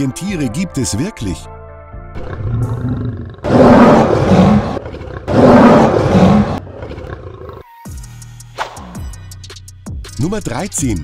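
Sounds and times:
lion roaring: 2.2s - 7.7s.

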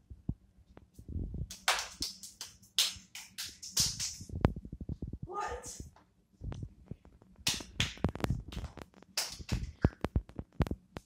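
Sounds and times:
hands clapping fast: 1.5s - 4.3s, 7.4s - 10.2s.

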